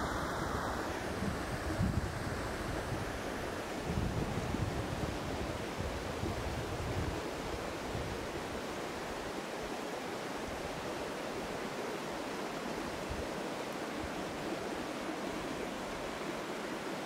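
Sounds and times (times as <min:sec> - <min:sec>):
rushing air or water hiss: 0:00.0 - 0:17.0.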